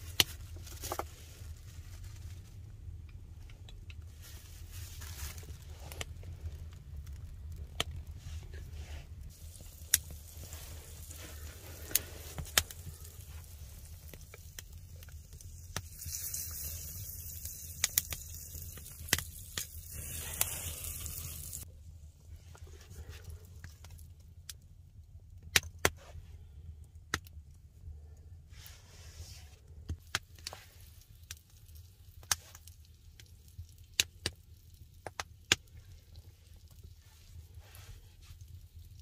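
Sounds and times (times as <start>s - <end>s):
wood fire crackling and popping: 0.0s - 21.7s, 22.5s - 26.0s, 29.9s - 39.0s
high hissing sizzle: 9.2s - 21.7s.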